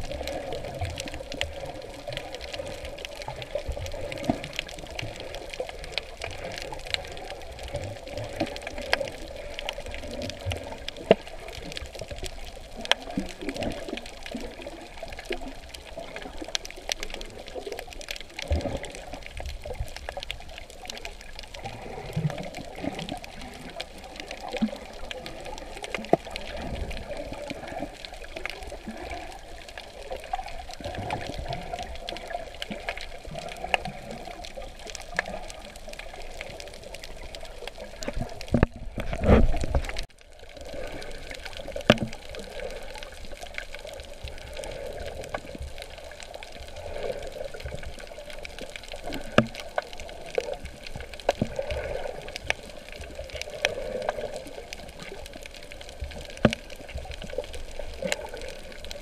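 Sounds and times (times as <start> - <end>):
muffled water sloshing: 0.0 - 59.0
rush of water: 0.0 - 59.0
small clicks: 22.2 - 59.0.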